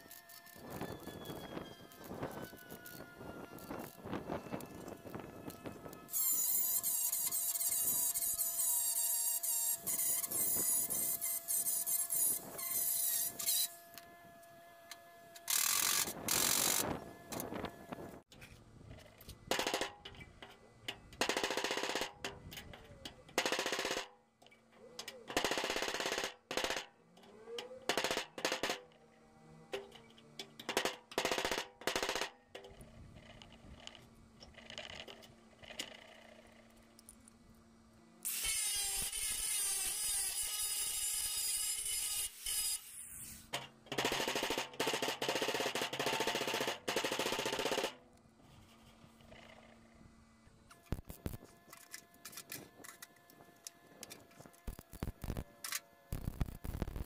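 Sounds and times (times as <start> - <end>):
welder crackling: 0.0 - 18.3, 38.2 - 43.6, 50.7 - 57.0.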